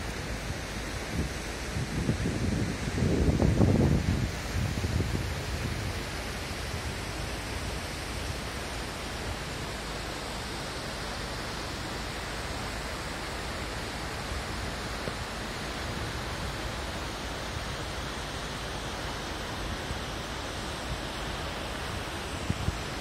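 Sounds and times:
steady rushing hiss: 0.0 - 23.0.

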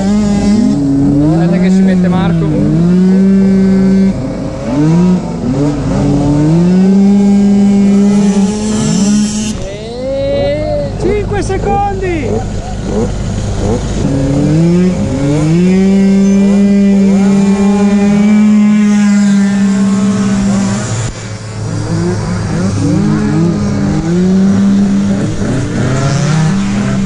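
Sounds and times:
scooter engines revving: 0.0 - 27.0.

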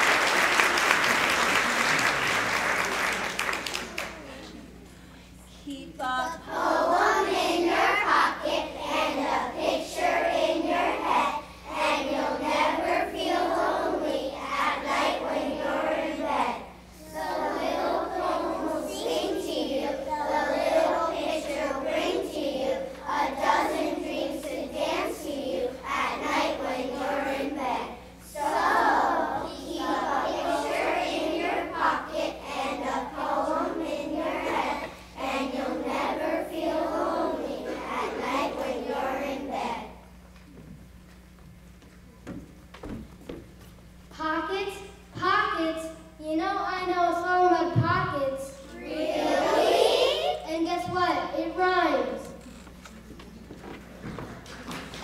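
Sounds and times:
children singing in unison: 6.5 - 11.1, 17.0 - 27.6, 28.3 - 39.6, 48.8 - 50.3.

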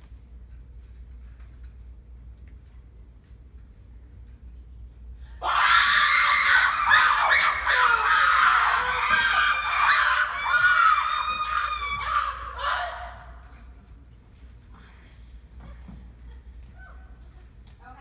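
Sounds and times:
people screaming in fright: 5.4 - 13.4.

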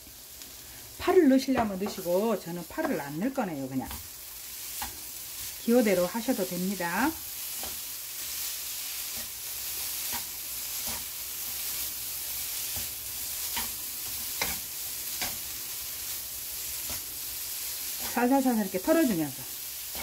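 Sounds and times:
food sizzling in a wok: 0.0 - 20.0
utensils tapping a pan: 1.5 - 3.2, 4.7 - 5.7, 9.1 - 11.8, 12.6 - 15.5, 16.7 - 17.2.

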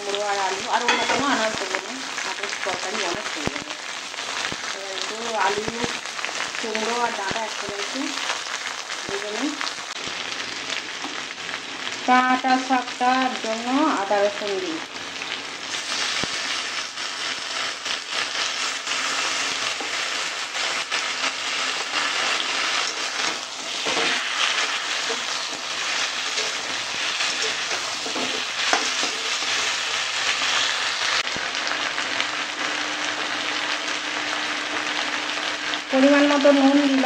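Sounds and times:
food sizzling in hot oil: 0.0 - 37.0
metal spatula scraping a wok: 21.2 - 30.0.

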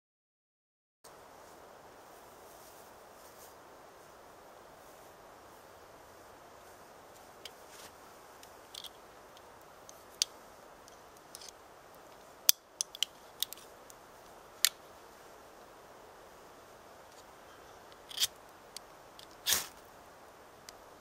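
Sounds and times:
fire-starting tools clicking and scraping: 8.4 - 13.7, 17.9 - 18.4.

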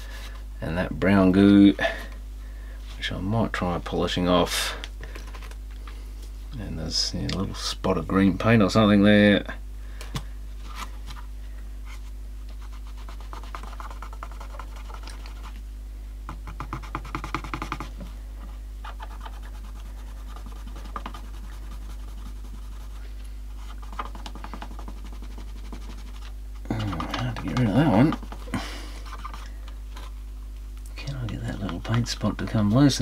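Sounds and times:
steady low hum: 0.0 - 33.0
stick scratching plastic case: 12.6 - 15.6, 16.4 - 18.0, 18.8 - 22.8, 23.6 - 30.1, 31.2 - 32.4.

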